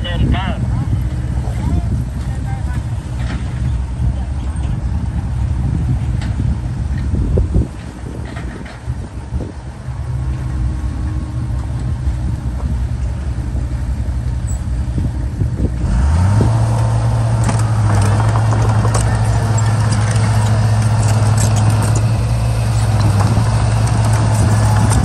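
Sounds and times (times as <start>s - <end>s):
bulldozer diesel engine revving: 9.2s - 25.0s
steel tracks clanking: 16.8s - 25.0s
rocks knocking: 17.4s - 22.2s.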